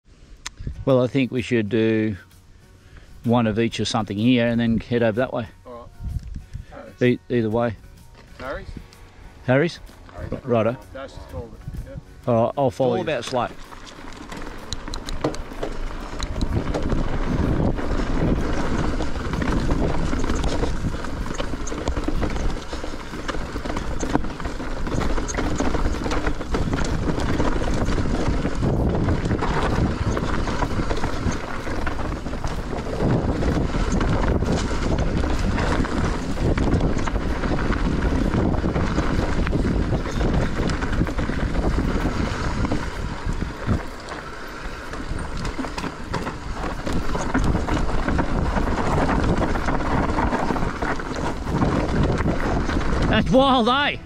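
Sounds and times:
tyres rumbling on dirt trail: 0:00.1 - 0:54.0
wind buffeting microphone: 0:03.2 - 0:54.0
bike clicks and knocks: 0:13.3 - 0:53.2.

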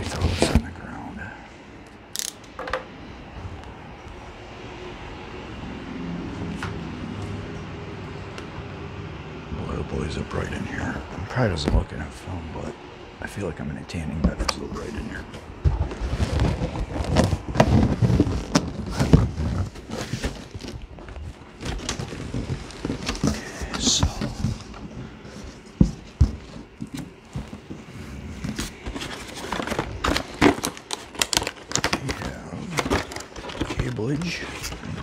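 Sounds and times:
cardboard and foam rustling: 0:00.0 - 0:01.2, 0:14.2 - 0:35.0.

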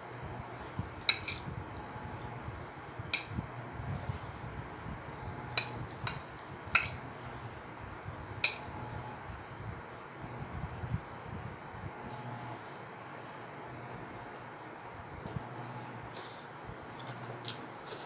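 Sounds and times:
low steady hum: 0:00.0 - 0:18.0
chopsticks clinking on ceramic plate: 0:05.6 - 0:07.0.

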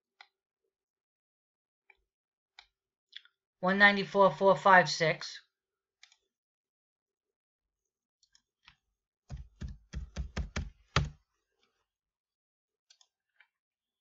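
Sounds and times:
keyboard typing: 0:09.3 - 0:11.2.

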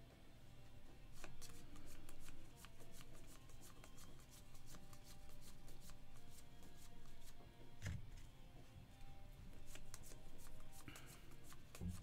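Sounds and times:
trading cards flicked by hand: 0:01.1 - 0:08.0, 0:09.6 - 0:12.0.

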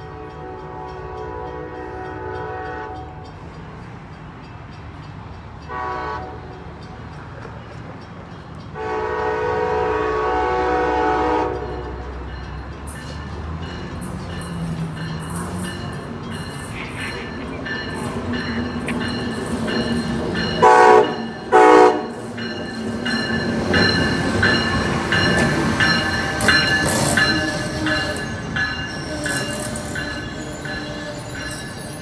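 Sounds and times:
train horn blasts: 0:00.0 - 0:03.2, 0:05.7 - 0:06.6, 0:08.8 - 0:12.1, 0:20.6 - 0:22.2
train wheels clattering: 0:11.5 - 0:32.0.

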